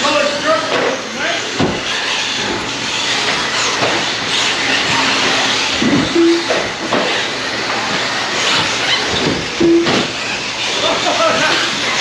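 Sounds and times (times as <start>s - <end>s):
electric motors and tyres whining: 0.0s - 12.0s
short tone: 6.2s - 6.6s, 9.6s - 10.1s.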